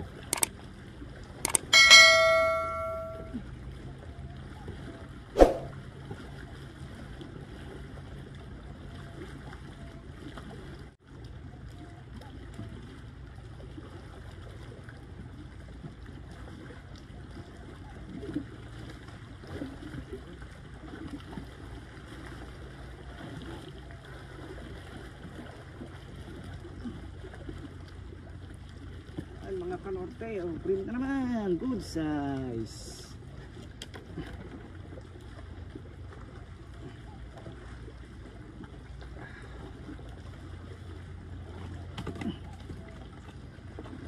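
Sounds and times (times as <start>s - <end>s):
short sharp ring: 1.5s - 3.4s
water splashes: 4.7s - 44.0s
wind and surf rushing: 5.4s - 5.7s.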